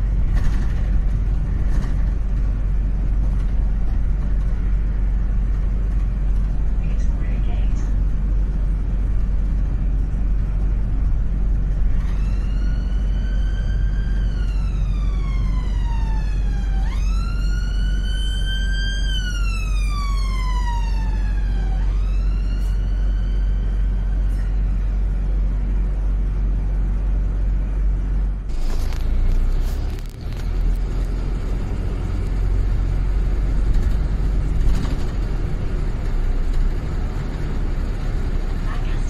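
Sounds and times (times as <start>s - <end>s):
bus engine rumble: 0.0s - 39.0s
road noise: 0.0s - 39.0s
emergency siren wailing: 12.0s - 24.2s.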